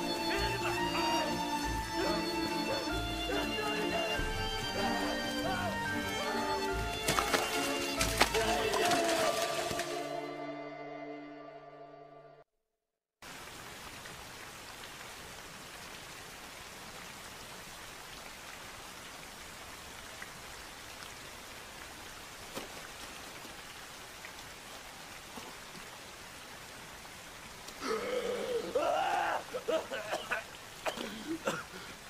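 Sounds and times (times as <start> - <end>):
rain on muddy ground: 0.0 - 10.1, 13.2 - 32.0
man crying out: 0.2 - 1.4, 27.8 - 30.4.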